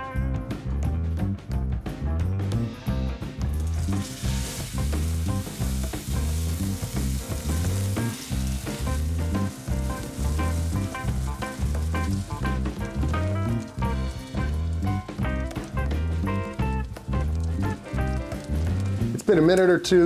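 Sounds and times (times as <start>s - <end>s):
music with bass beat: 0.0s - 19.3s
steak sizzling in a skillet: 3.6s - 19.2s.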